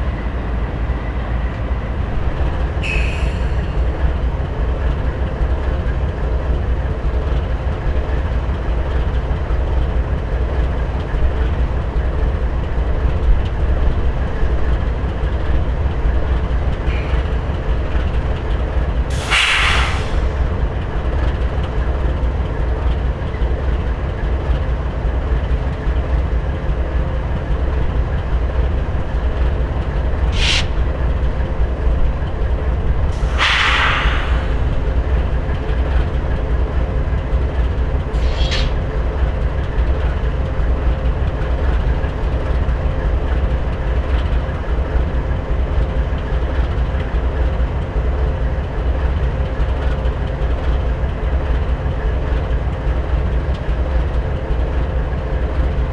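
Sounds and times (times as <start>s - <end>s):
diesel locomotives idling: 0.0s - 55.9s
air hissing: 19.1s - 20.2s, 30.3s - 30.8s, 33.2s - 34.8s, 38.2s - 38.8s.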